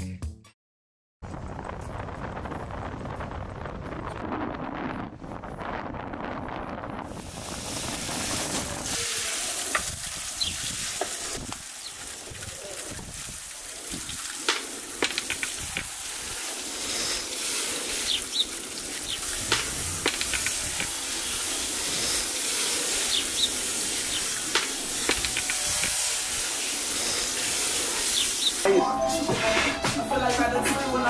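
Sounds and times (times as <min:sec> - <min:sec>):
shower water spraying and splashing: 0:07.0 - 0:28.7
sharp clicks and splats: 0:09.7 - 0:25.9.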